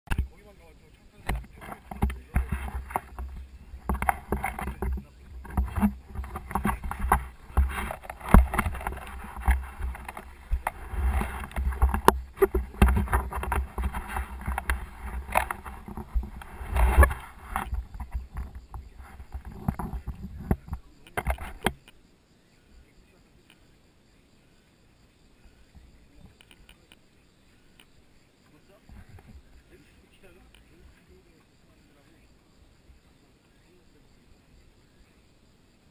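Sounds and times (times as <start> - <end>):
knocks and thumps: 0.1 - 0.3, 1.2 - 21.9
cloth rubbing on camera housing: 1.4 - 20.5.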